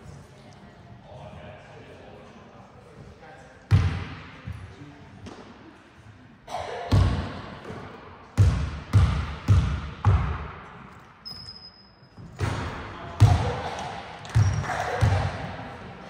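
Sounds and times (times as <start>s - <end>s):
basketball bouncing on hall floor: 3.7s - 4.6s, 6.9s - 11.6s, 12.2s - 16.0s.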